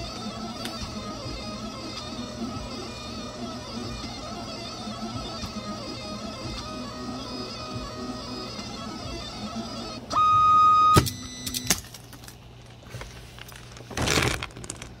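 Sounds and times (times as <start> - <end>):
stepper motors whining: 0.0 - 11.7.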